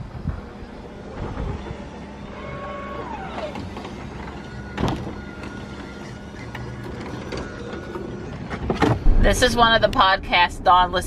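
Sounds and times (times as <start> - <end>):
car door motor whine: 0.1 - 9.4
door thump: 8.8 - 9.4.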